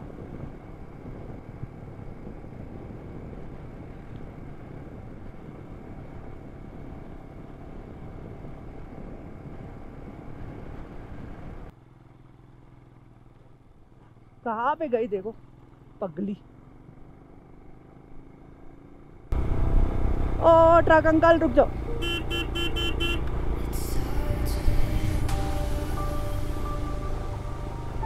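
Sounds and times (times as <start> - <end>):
motorcycle engine: 0.0 - 28.0.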